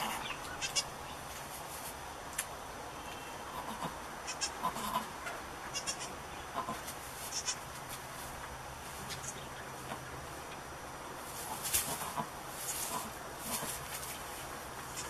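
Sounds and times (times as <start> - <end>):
goats bleating: 5.7 - 7.6.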